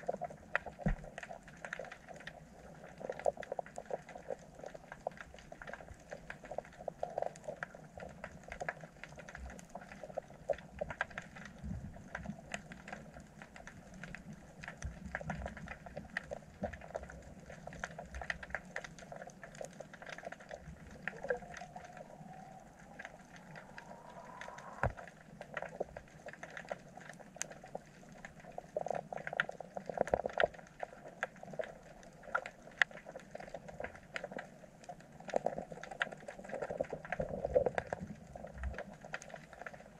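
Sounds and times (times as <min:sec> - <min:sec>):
crackle of small clicks underwater: 0:00.0 - 0:39.9
low underwater wash: 0:00.0 - 0:39.9
faint rising whine: 0:20.8 - 0:25.3.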